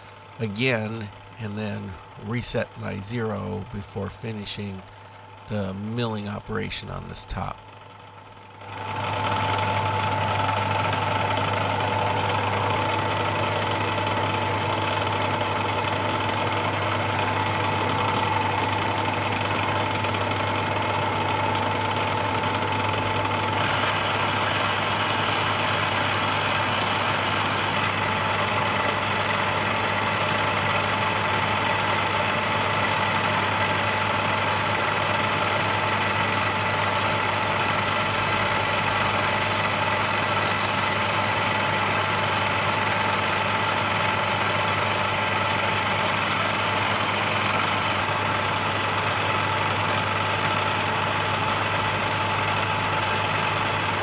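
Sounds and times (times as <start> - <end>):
milling machine cutting metal: 8.9 - 21.8, 23.2 - 54.0.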